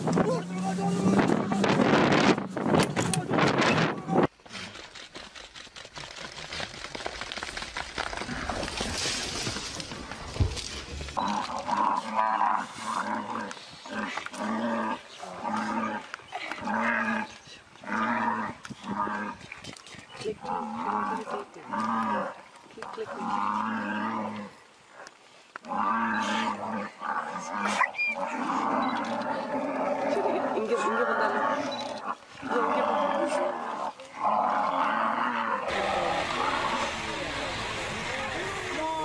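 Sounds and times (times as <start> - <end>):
rushing noise: 35.7 - 39.0.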